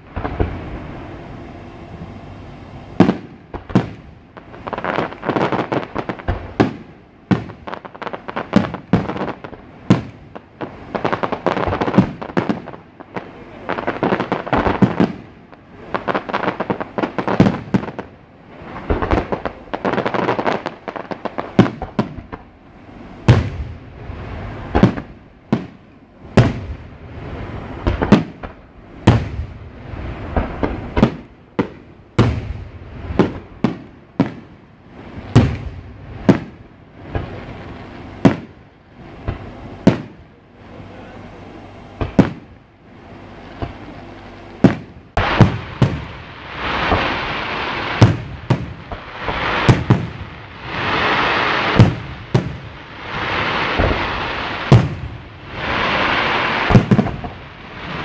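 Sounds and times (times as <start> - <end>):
firework crackling: 0.0 - 58.0
firework shells bursting: 44.6 - 58.0.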